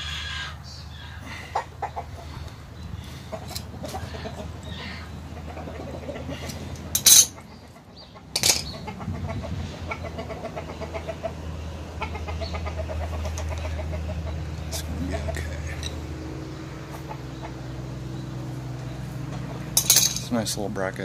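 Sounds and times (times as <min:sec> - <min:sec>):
rapid animal calls: 0:00.0 - 0:19.8
sharp metal clanks: 0:06.9 - 0:07.4, 0:08.3 - 0:08.8, 0:19.8 - 0:20.4.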